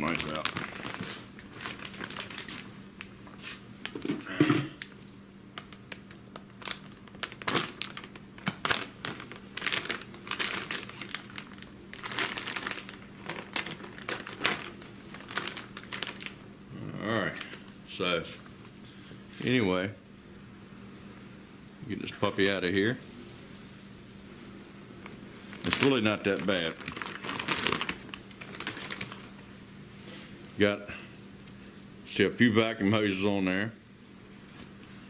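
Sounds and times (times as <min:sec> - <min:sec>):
plastic bag crinkling: 0:00.0 - 0:04.2, 0:05.5 - 0:16.4, 0:25.0 - 0:29.5.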